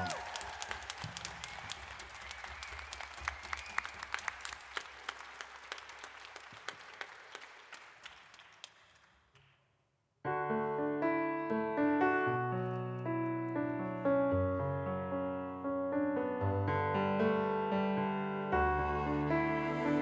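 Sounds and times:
audience applause: 0.0s - 9.2s
keyboard playing piano chords: 10.3s - 20.0s.

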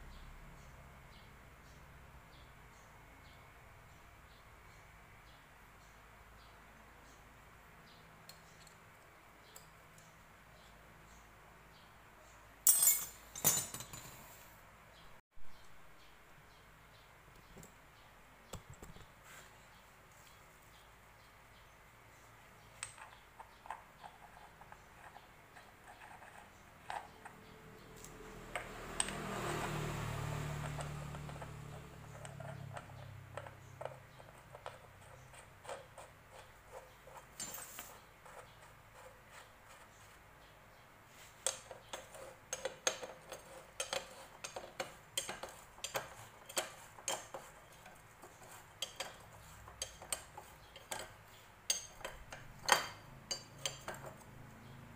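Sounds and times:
metal parts clinking: 12.7s - 14.3s.

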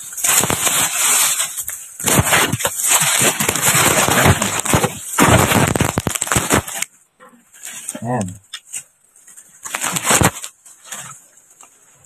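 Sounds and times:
crackling and rustling at microphone: 0.0s - 12.0s.

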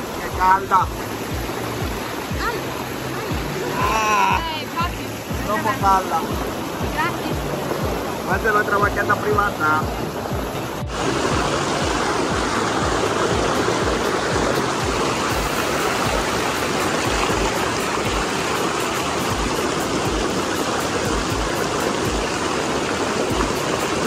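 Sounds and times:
water rushing and splashing: 0.0s - 24.0s.

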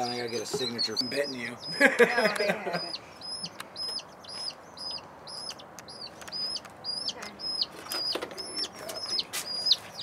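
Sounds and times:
baby chicks peeping: 0.0s - 10.0s.

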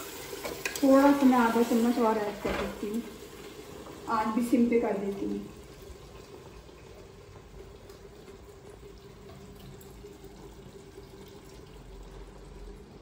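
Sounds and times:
meat sizzling in fat: 0.0s - 4.4s.

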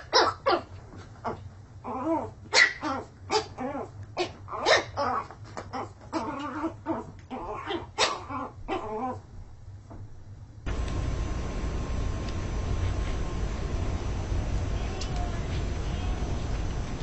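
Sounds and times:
small dog barking: 2.5s - 3.6s, 4.2s - 5.2s, 7.6s - 8.9s.

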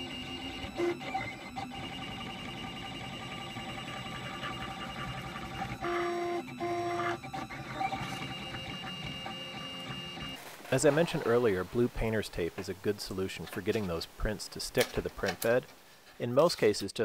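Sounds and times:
stepper motors whining: 0.0s - 10.4s.

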